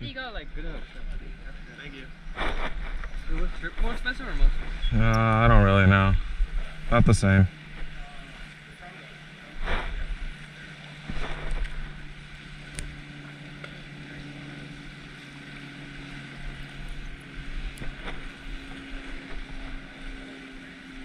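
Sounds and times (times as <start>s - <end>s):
low hum: 0.0s - 21.0s
wind buffeting microphone: 0.8s - 8.0s.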